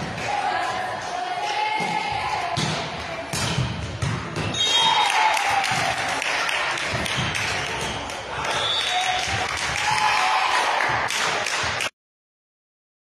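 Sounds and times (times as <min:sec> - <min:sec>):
girls shouting and cheering: 0:04.8 - 0:06.2, 0:09.0 - 0:11.0.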